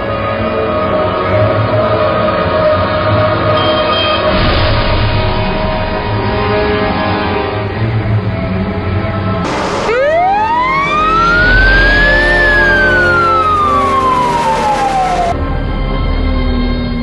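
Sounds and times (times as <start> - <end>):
background music: 0.0 - 17.0
fire truck siren wail: 9.4 - 15.5.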